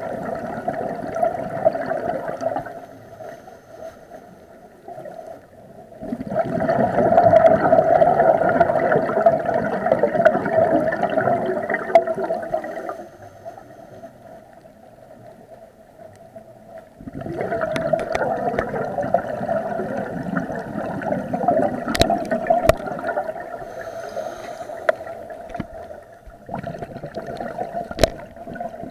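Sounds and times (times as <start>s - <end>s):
muffled underwater breath bubbling: 6.0s - 14.5s, 17.0s - 28.9s.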